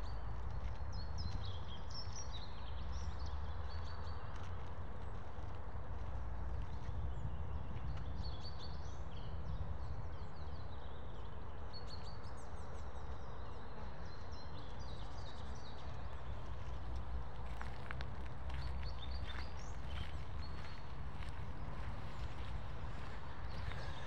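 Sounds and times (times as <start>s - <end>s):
small birds chirping: 6.7s - 24.0s
steady low rumble: 15.9s - 24.0s.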